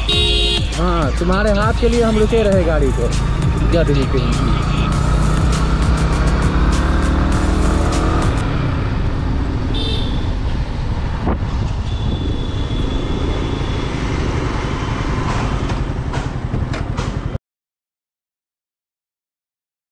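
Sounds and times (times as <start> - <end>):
motorcycle engine running: 0.0 - 10.3, 14.4 - 17.4
wind and road noise: 0.0 - 17.4.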